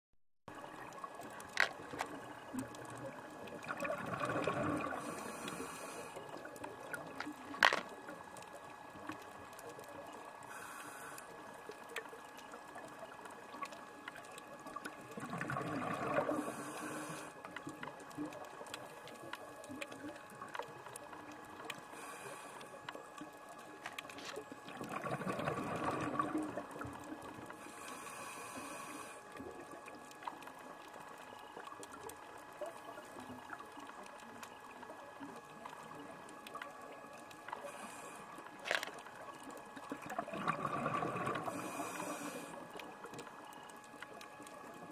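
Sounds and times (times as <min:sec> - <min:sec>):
exhaled bubbles gurgling: 0:00.5 - 0:44.9
faint steady crackle: 0:00.5 - 0:44.9
regulator inhale hisses: 0:05.0 - 0:06.2, 0:10.5 - 0:11.3, 0:16.3 - 0:17.3, 0:21.9 - 0:22.7, 0:27.6 - 0:29.2, 0:41.5 - 0:42.6.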